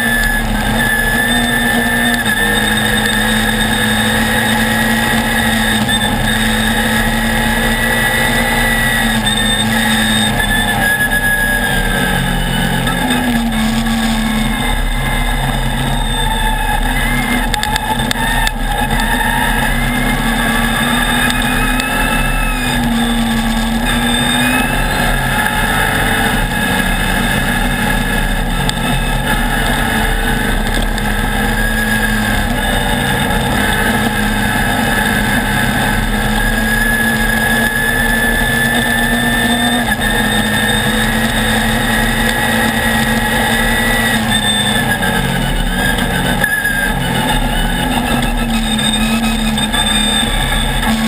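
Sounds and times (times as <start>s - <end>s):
buggy engine running hard: 0.0s - 51.0s.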